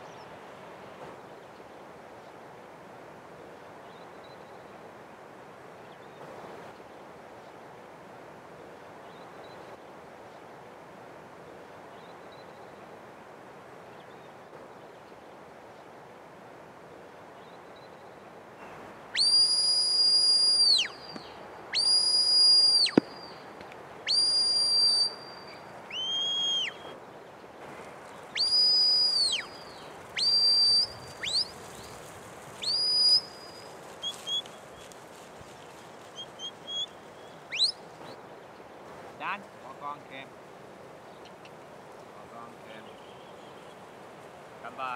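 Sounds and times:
short rising whistles and pips: 0:19.1 - 0:23.4, 0:24.0 - 0:27.0, 0:28.3 - 0:32.0, 0:32.6 - 0:34.6, 0:36.2 - 0:37.9
long high whistle blasts: 0:19.2 - 0:21.1, 0:21.7 - 0:23.4, 0:24.1 - 0:26.9.

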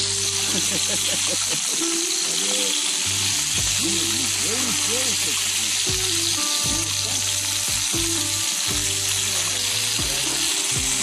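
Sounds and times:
dumplings sizzling in a pan: 0:00.0 - 0:11.0.

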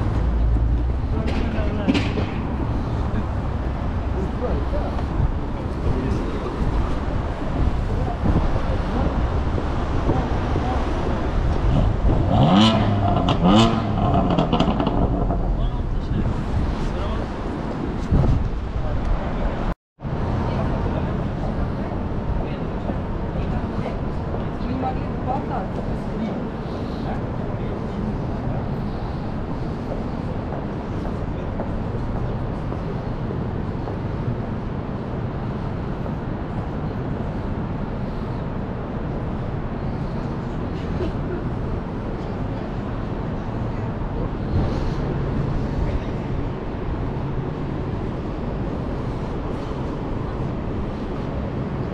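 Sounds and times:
cars driving past: 0:00.0 - 0:51.9
engine accelerating: 0:11.4 - 0:16.2.

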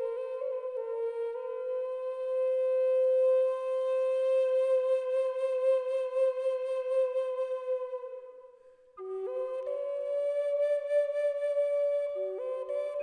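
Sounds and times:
solo flute music: 0:00.0 - 0:13.0.

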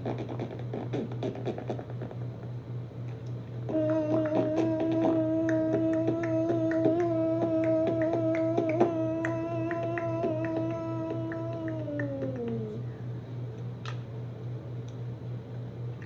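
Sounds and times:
person humming: 0:03.6 - 0:12.9.

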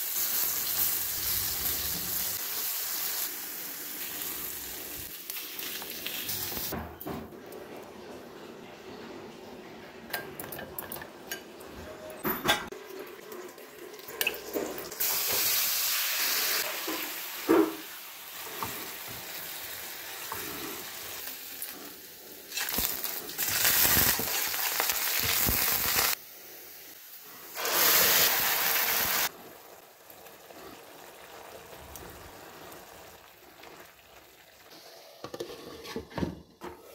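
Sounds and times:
hot oil sizzling in a frying pan: 0:00.0 - 0:06.8, 0:14.2 - 0:35.1.

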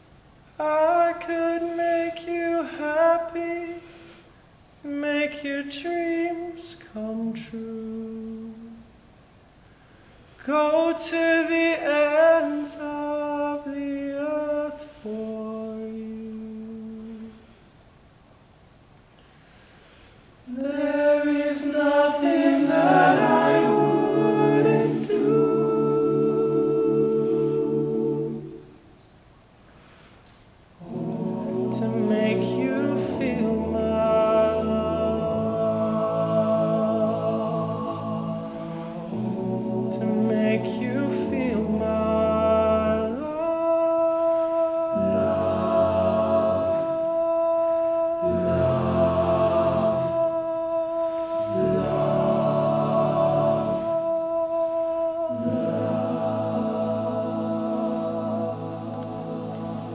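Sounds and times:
male a cappella group singing: 0:00.6 - 0:03.9, 0:04.9 - 0:08.8, 0:10.4 - 0:17.4, 0:20.5 - 0:28.8, 0:30.8 - 0:59.9.

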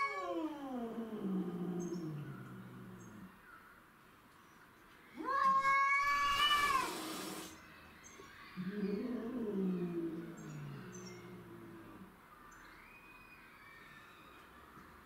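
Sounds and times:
cat yowling: 0:00.0 - 0:02.5, 0:05.2 - 0:07.5, 0:08.6 - 0:12.1
low cat caterwaul: 0:00.0 - 0:03.3, 0:05.2 - 0:07.1, 0:08.6 - 0:12.2
cat hissing: 0:05.9 - 0:07.6.

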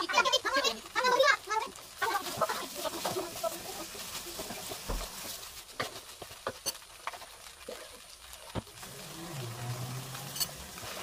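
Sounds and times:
noodles sizzling in a wok: 0:00.0 - 0:11.0
wooden spatula scraping a pan: 0:02.0 - 0:08.0, 0:08.8 - 0:11.0.

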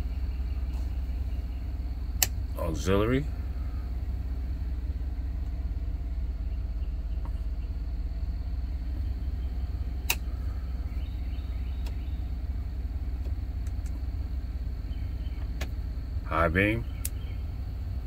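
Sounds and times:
car engine idling: 0:00.0 - 0:18.0
sharp click: 0:02.2 - 0:02.4, 0:10.0 - 0:10.3.

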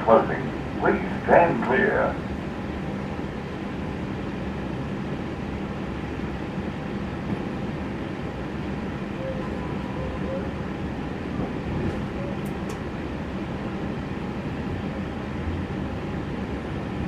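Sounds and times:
train carriage hum and rumble: 0:00.0 - 0:17.0.

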